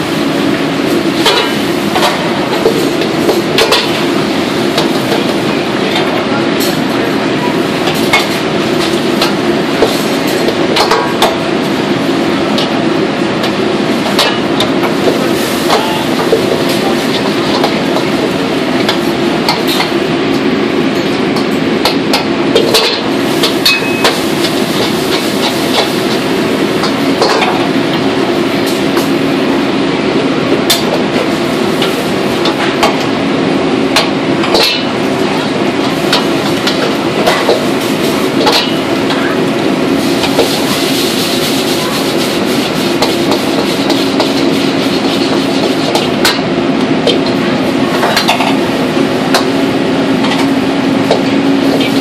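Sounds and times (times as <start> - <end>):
metal ladle clanking on woks: 22.6 - 24.2.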